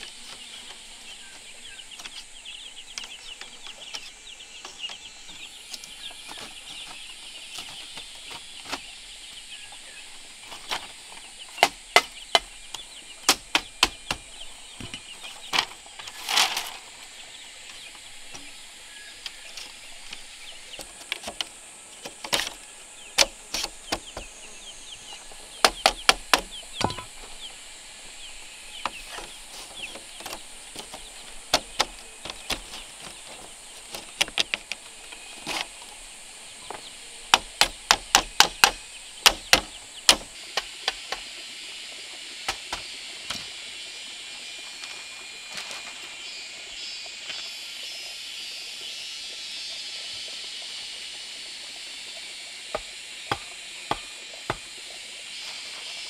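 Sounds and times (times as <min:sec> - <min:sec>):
sharp knocks: 0:36.7 - 0:41.2, 0:52.8 - 0:54.8.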